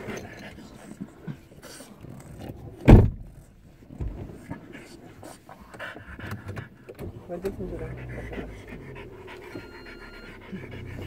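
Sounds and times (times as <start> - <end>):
faint low thud: 2.8 - 3.3
heavy dull thump: 2.8 - 3.3.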